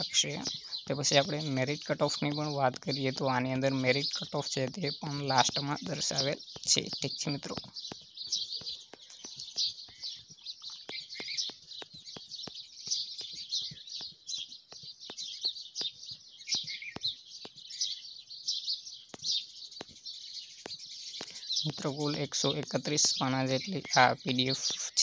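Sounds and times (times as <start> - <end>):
small birds chirping: 0.0 - 25.0
sharp clicks: 4.1 - 18.0.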